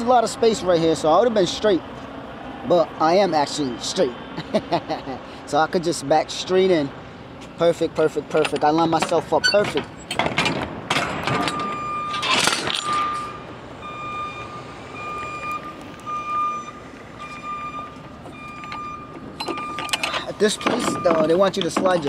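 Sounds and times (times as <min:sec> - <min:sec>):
truck engine running: 0:06.4 - 0:22.0
truck reversing alarm beeping: 0:11.3 - 0:22.0.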